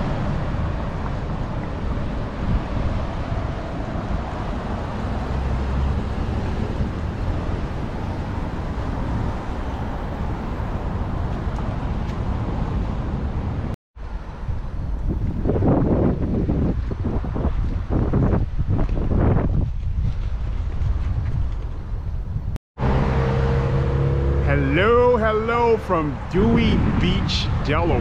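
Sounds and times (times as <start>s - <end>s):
road traffic noise: 0.0s - 18.6s, 21.6s - 28.0s
wind buffeting microphone: 0.0s - 24.2s, 24.9s - 28.0s.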